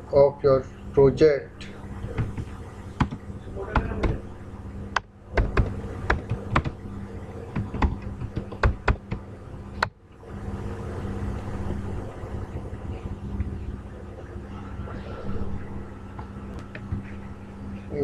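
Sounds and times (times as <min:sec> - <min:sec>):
steady low hum: 0:00.0 - 0:18.0
keyboard typing: 0:05.0 - 0:06.8, 0:07.5 - 0:09.2.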